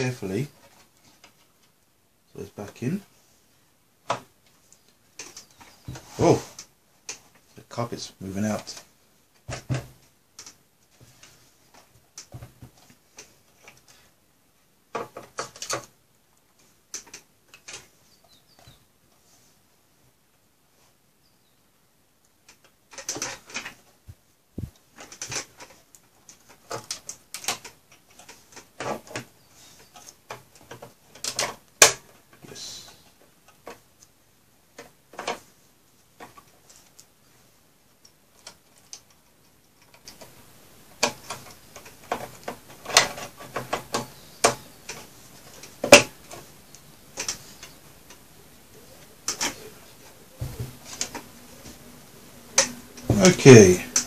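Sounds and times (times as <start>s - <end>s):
faint steady hiss: 0.0s - 54.0s
cables and connectors clicking: 38.0s - 51.7s, 52.4s - 53.3s.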